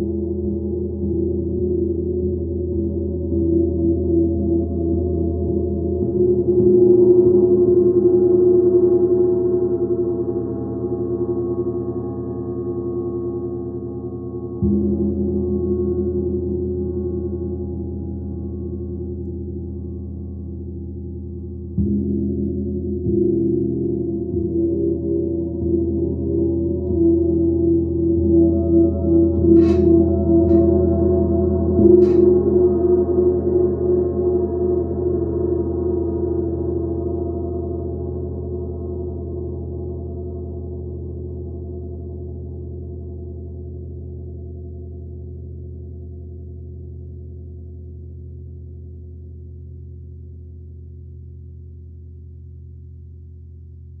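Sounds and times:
gong struck with felt mallet: 21.6s - 36.1s.

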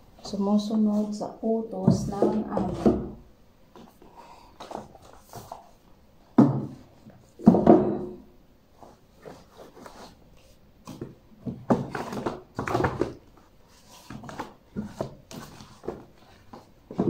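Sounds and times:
books knocking together: 6.4s - 8.1s, 10.8s - 13.2s, 14.0s - 17.0s.

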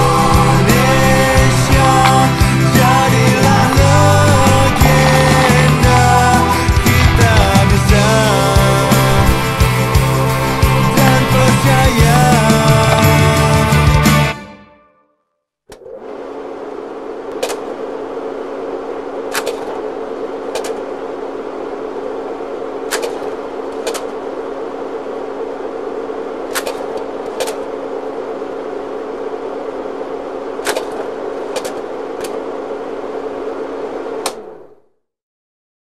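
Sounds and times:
sharp crackling pops: 0.0s - 13.9s, 22.8s - 24.3s, 30.6s - 32.5s
low hum and hiss: 0.0s - 14.4s, 15.8s - 35.0s.

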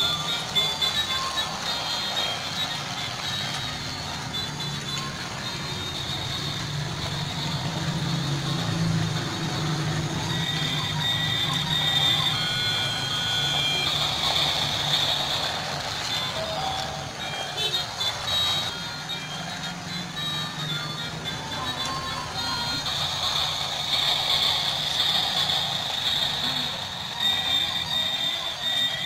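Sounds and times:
high electronic tones: 0.0s - 29.0s
toy train motor hum: 0.0s - 29.0s
toy train wheels on rails: 0.0s - 29.0s.

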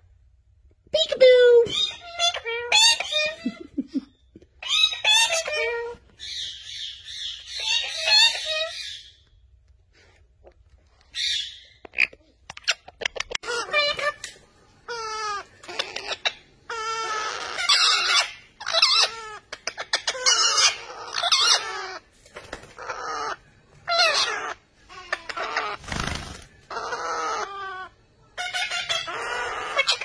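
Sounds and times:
parakeets calling: 1.6s - 3.6s, 4.6s - 9.2s, 11.1s - 30.0s.

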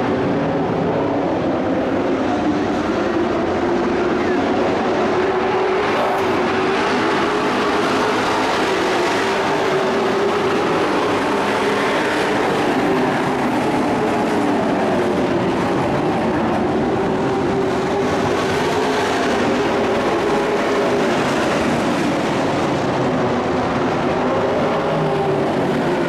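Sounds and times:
race truck engines droning: 0.0s - 26.0s.

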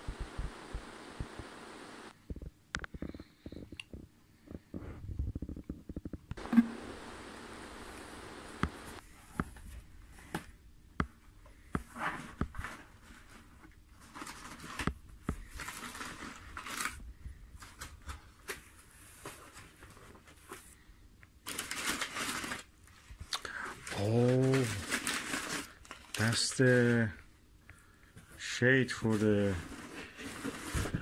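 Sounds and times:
packing paper crinkling: 12.6s - 20.6s, 21.4s - 27.0s.

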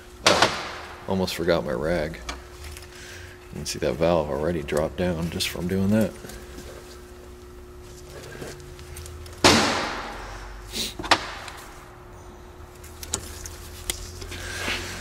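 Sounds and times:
sudden metal crack: 9.4s - 10.2s.

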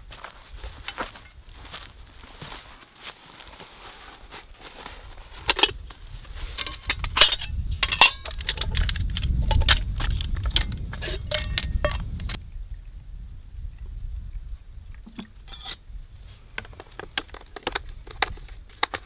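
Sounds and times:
metallic clinking and rattling: 6.5s - 12.4s.

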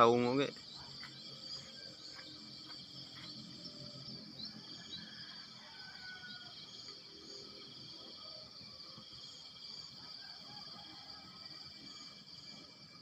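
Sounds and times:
high-pitched insect chorus: 0.0s - 13.0s
low outdoor background noise: 0.0s - 13.0s.

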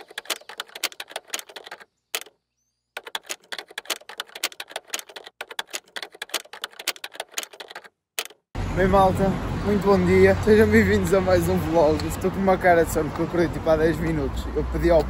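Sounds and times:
rapid keyboard key clicks: 0.0s - 2.4s, 3.0s - 8.5s.

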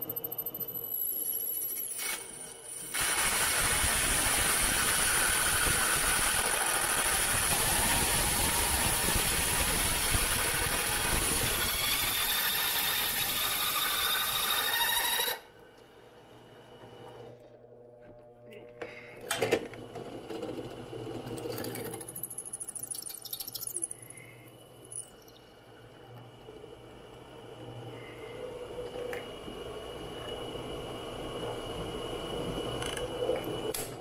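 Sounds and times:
drill bit squealing: 10.6s - 15.5s.

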